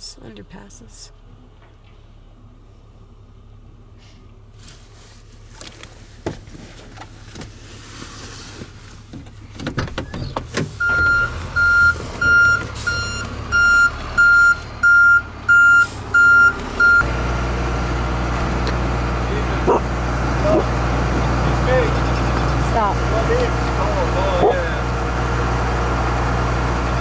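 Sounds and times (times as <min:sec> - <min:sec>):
low engine rumble: 0:00.0 - 0:27.0
truck reversing alarm beeping: 0:10.8 - 0:23.2.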